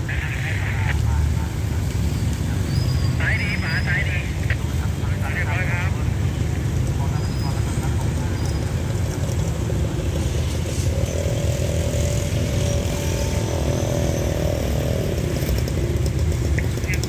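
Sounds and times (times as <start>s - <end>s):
distant diesel locomotive rumble: 0.0s - 17.0s
droning engine tone: 9.9s - 17.0s.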